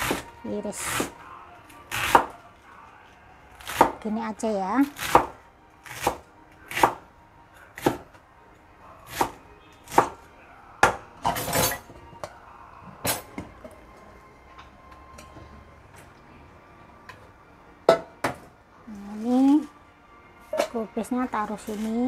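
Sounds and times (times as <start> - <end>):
cleaver chopping on wooden board: 5.0 - 7.0.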